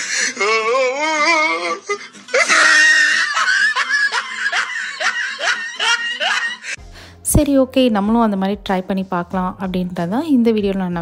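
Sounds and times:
high-pitched laughter: 0.4 - 6.8.

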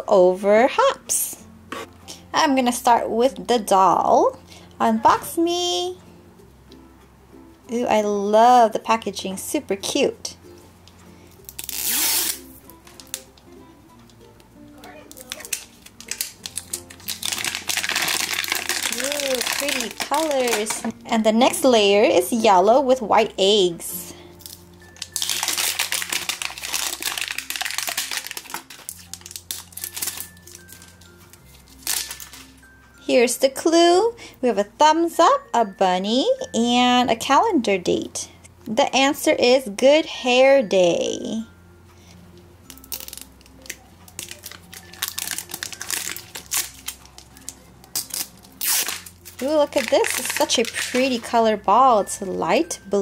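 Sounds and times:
soft background music: 0.0 - 53.0
wrapper crinkling: 11.4 - 13.4, 14.8 - 21.0, 24.4 - 32.7, 42.7 - 51.4.

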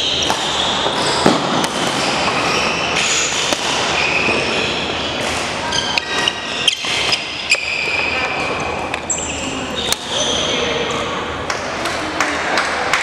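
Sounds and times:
racket hitting shuttlecock: 0.0 - 7.3
sneaker squeaks on wooden floor: 0.0 - 11.0.

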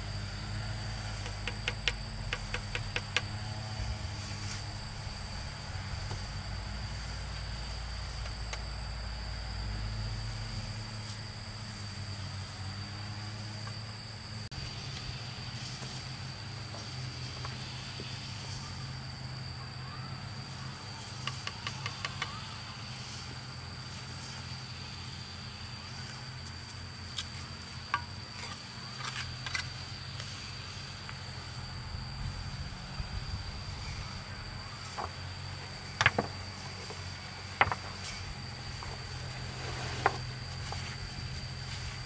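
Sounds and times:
insects droning: 0.0 - 42.0
trowel tapping on stone: 1.2 - 3.3.

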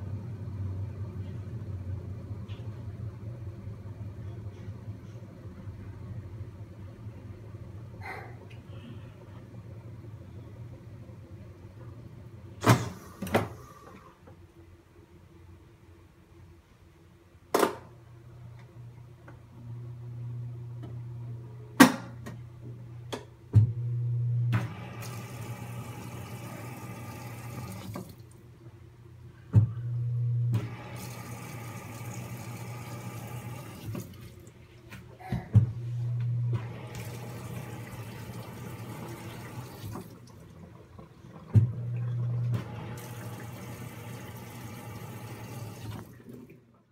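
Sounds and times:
washing machine motor hum: 18.3 - 46.9.

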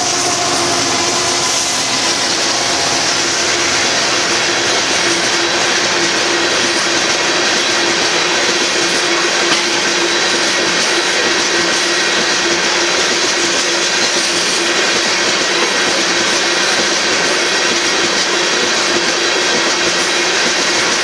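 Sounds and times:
steady tone: 0.0 - 10.6
freight cars rolling on rails: 0.0 - 21.0.

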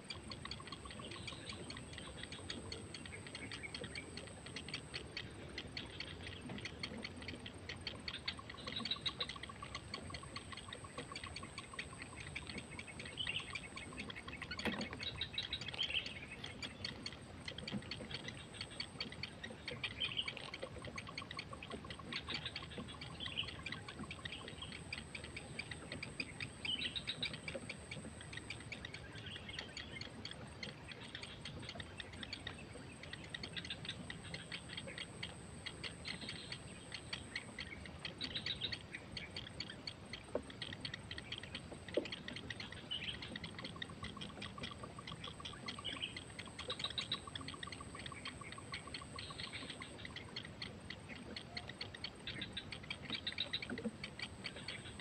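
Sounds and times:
chicks chirping: 0.2 - 55.0.

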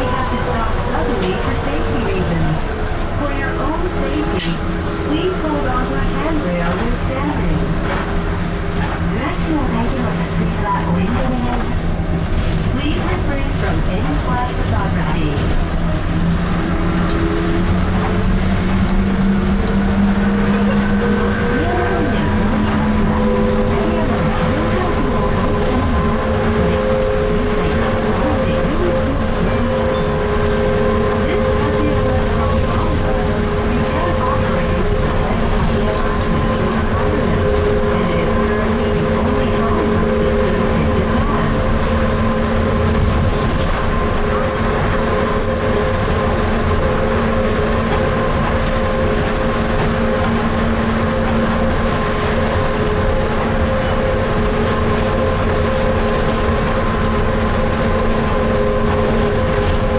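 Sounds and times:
bus interior rumble: 0.0 - 59.9
electric traction motor hum: 13.6 - 59.9.

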